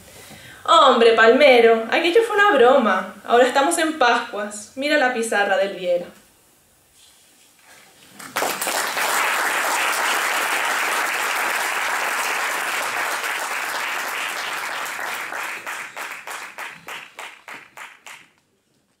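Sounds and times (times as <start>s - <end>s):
audience applauding: 8.2s - 18.4s.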